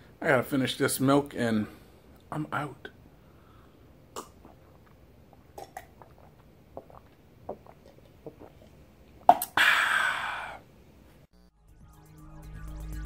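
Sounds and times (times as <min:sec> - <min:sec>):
man gulping: 0:04.0 - 0:10.7
man exhaling ahh: 0:09.4 - 0:10.7.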